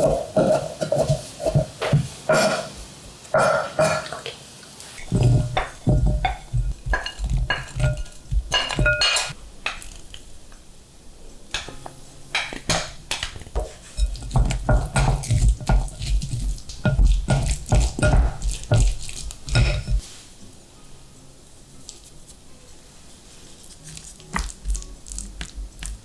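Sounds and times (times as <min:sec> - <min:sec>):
stirring food in a bowl: 0:00.0 - 0:01.9, 0:05.0 - 0:10.2, 0:12.4 - 0:20.2
wooden spatula scraping glass bowl: 0:13.6 - 0:20.1.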